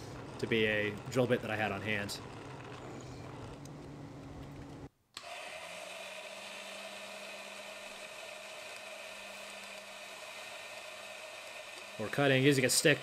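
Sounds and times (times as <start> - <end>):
drill press motor: 5.2 - 13.0
table saw motor hum: 5.2 - 13.0.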